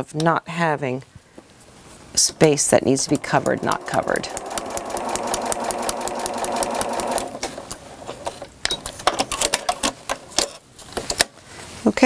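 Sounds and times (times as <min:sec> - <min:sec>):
sewing machine stitching: 0:02.7 - 0:08.4.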